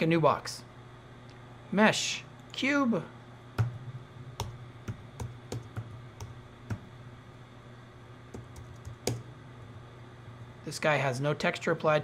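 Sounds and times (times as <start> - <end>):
low steady hum: 0.0 - 12.0
keyboard and mouse clicks: 4.4 - 6.8, 8.3 - 9.2.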